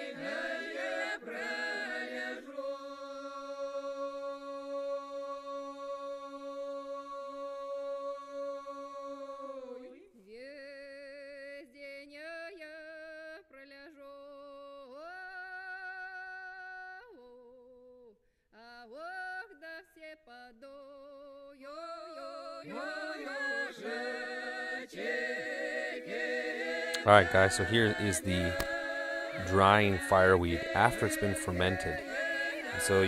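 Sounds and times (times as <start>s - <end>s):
voices singing in harmony: 0.0s - 10.0s, 21.6s - 33.0s
person singing with vibrato: 26.1s - 33.0s.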